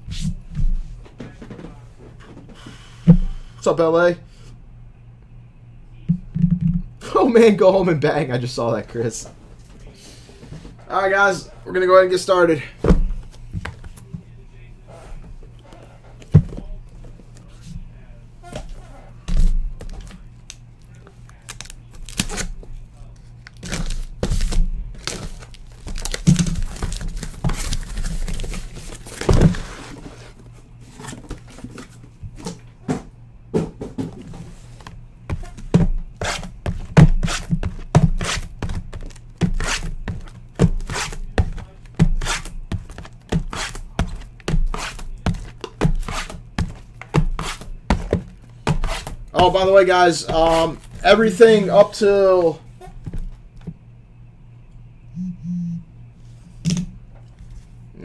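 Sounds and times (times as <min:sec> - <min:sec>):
cardboard tearing and crinkling: 0:21.3 - 0:22.6, 0:23.4 - 0:30.2, 0:36.2 - 0:51.0
boxes knocking when stacked: 0:35.3 - 0:50.8.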